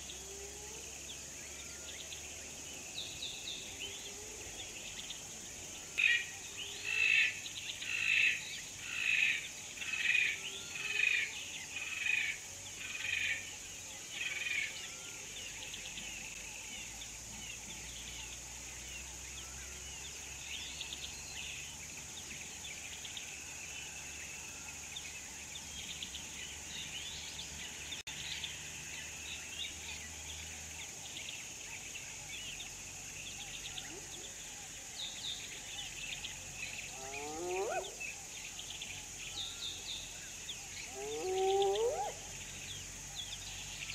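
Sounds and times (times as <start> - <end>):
bird chirping: 0.0 - 43.9
high-pitched insect drone: 32.8 - 43.9
loud bird call: 40.8 - 42.2.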